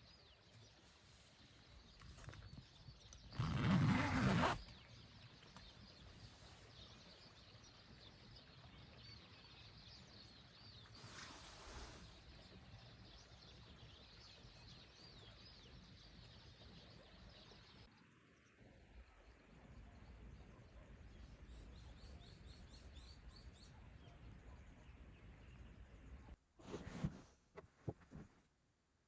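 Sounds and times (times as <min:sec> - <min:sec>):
small birds chirping: 0:00.0 - 0:27.3
fabric rustle: 0:03.4 - 0:04.6, 0:26.6 - 0:28.5.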